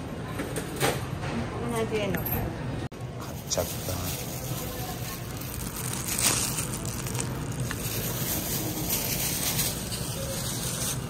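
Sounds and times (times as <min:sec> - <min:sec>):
low background hum: 0:00.0 - 0:11.0
plastic bag rustling: 0:03.2 - 0:11.0.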